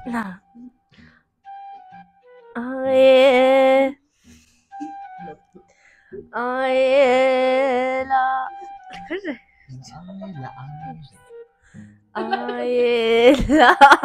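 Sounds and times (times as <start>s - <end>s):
woman singing held notes: 12.2s - 13.4s.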